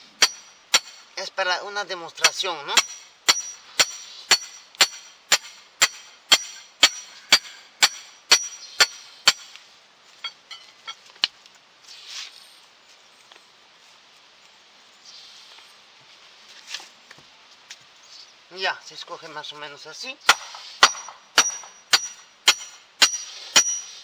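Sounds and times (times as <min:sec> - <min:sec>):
metal stake struck with ringing: 0:00.2 - 0:01.1, 0:02.2 - 0:09.5, 0:20.3 - 0:24.0.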